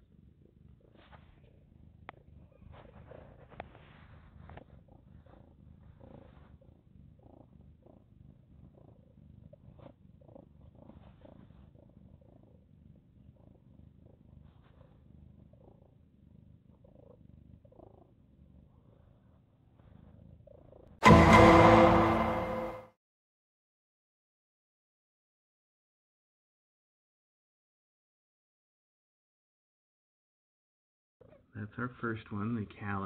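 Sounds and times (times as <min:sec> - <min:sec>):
cat purring: 0:00.0 - 0:21.0.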